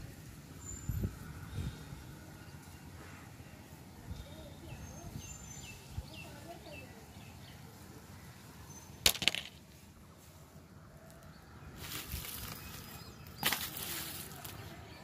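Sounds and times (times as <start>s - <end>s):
dry palm leaves rustling: 6.4s - 15.0s.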